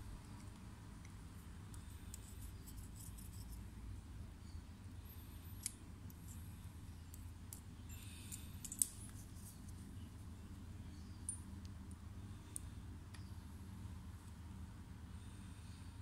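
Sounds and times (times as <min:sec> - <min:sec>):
faint low hum: 0:00.0 - 0:16.0
metal tools clicking and tapping: 0:07.1 - 0:09.1.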